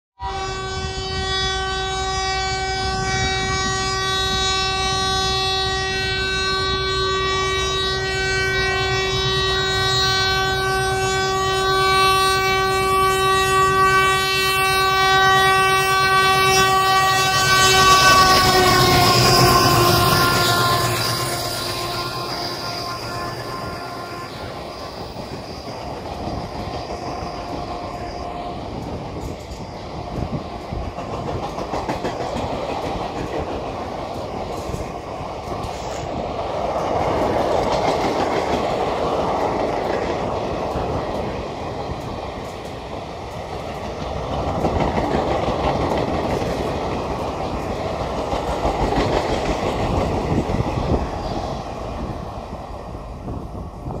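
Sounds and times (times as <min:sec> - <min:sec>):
train coaches rolling past: 0:00.2 - 0:54.0
wheels clattering over rail joints: 0:29.1 - 0:35.9.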